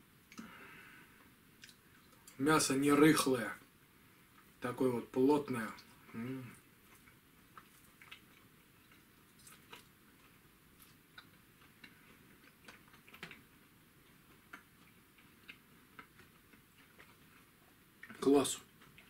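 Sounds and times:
faint clicks of chewing: 0.3 - 0.6, 1.2 - 2.4, 6.8 - 19.0.

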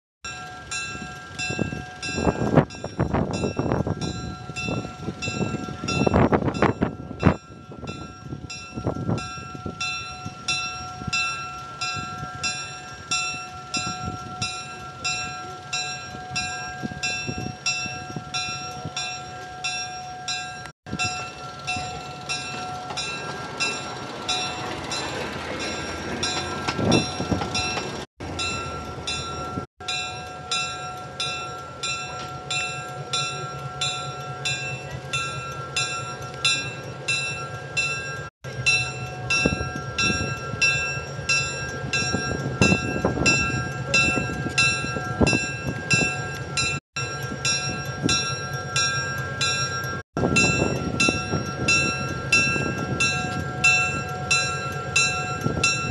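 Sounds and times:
locomotive bell ringing: 0.2 - 55.9
diesel engine running: 20.9 - 55.9.

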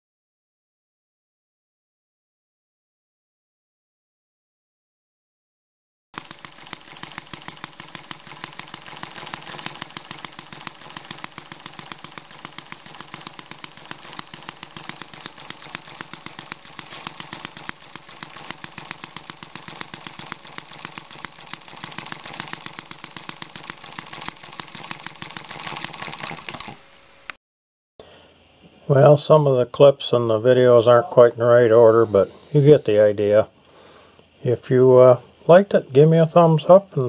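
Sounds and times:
small gas engine popping: 6.2 - 26.8.

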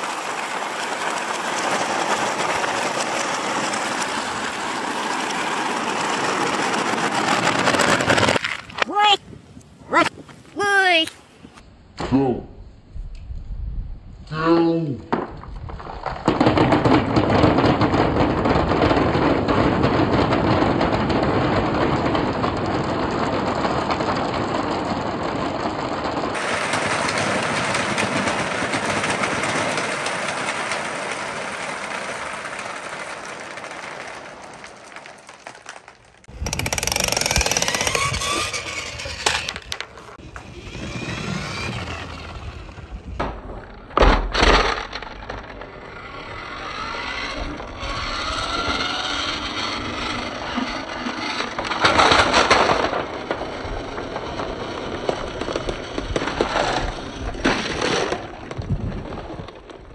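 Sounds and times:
marbles clattering down wooden run: 0.0 - 8.8, 16.4 - 42.6.

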